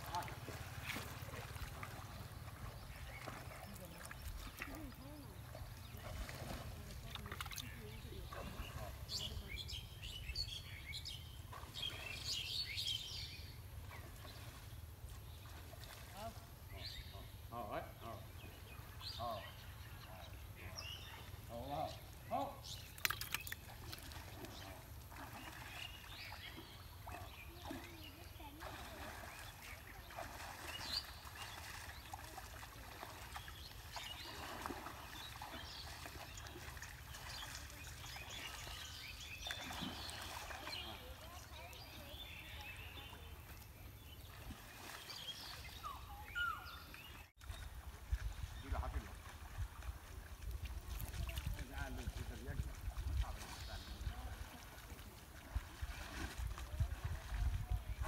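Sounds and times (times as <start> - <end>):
small birds chirping: 0.0 - 55.8
bird chirps: 33.4 - 47.3.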